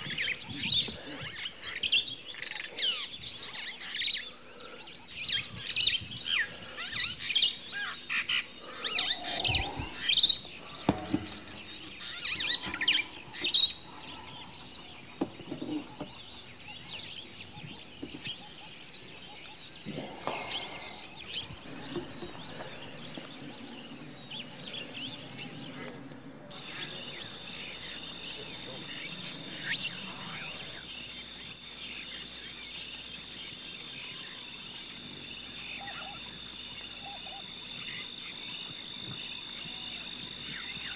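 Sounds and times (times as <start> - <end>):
small birds chirping: 0.0 - 40.9
pulsing high-pitched animal chorus: 6.3 - 10.9, 24.8 - 40.9.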